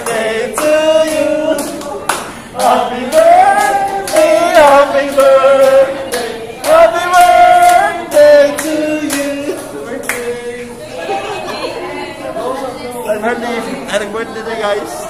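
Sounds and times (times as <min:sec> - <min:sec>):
people clapping in time: 0:00.0 - 0:10.3
group of people singing: 0:00.0 - 0:12.6.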